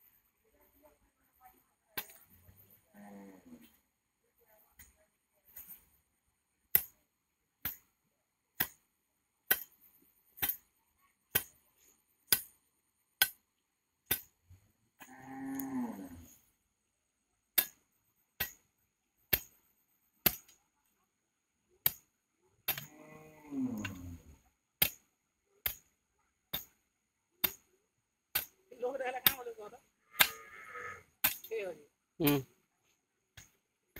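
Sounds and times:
cow mooing: 0:15.0 - 0:16.3, 0:22.8 - 0:24.2, 0:30.1 - 0:31.1.

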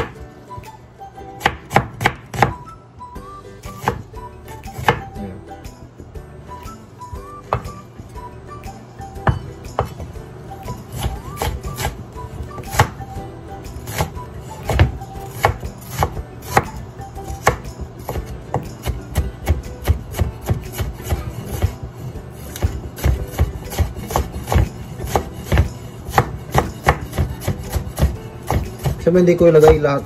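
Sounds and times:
knife chopping onion on wood: 0:00.0 - 0:00.3, 0:01.4 - 0:02.6, 0:03.7 - 0:05.2, 0:07.5 - 0:07.8, 0:09.2 - 0:13.2, 0:13.8 - 0:30.0.

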